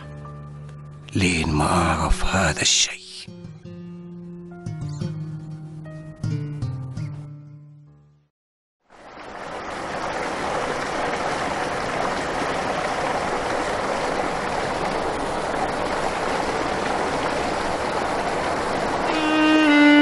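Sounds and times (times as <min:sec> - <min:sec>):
running water: 0:08.8 - 0:20.0.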